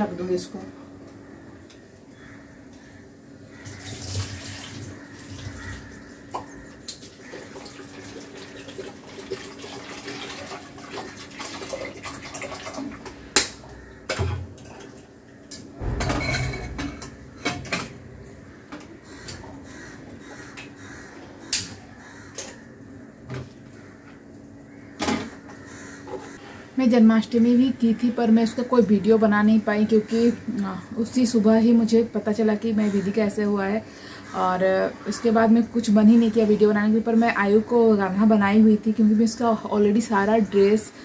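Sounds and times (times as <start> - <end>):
water running and pouring: 3.8 - 5.6, 6.8 - 13.1
low hum: 15.4 - 20.3
pots and utensils knocking: 15.8 - 18.1.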